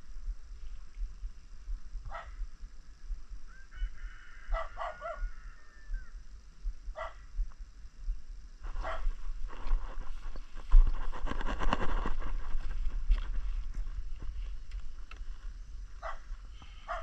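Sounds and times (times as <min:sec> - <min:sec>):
dog barking: 0:02.1 - 0:02.4, 0:04.5 - 0:05.2, 0:07.0 - 0:07.2, 0:08.8 - 0:09.1, 0:16.0 - 0:17.0.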